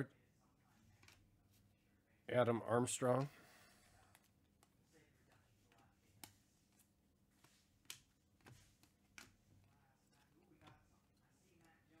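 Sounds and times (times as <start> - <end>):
trading cards being flipped: 6.2 - 10.8.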